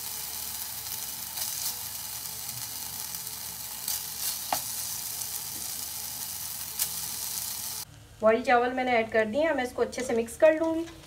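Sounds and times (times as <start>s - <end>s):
oil sizzling in a pan: 0.0s - 7.9s.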